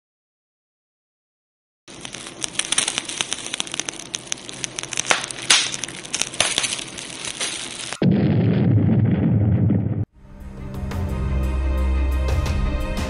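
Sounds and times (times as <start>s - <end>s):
fire crackling and popping: 1.9s - 10.1s.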